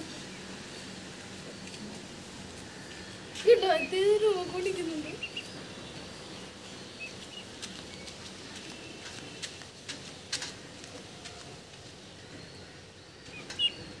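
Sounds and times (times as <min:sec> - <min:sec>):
ducklings peeping: 0:02.6 - 0:09.2, 0:12.6 - 0:14.0.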